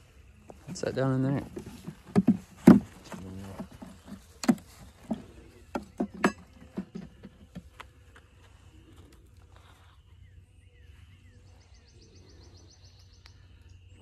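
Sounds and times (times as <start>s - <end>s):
hive frames knocking and clicking: 1.4s - 8.0s.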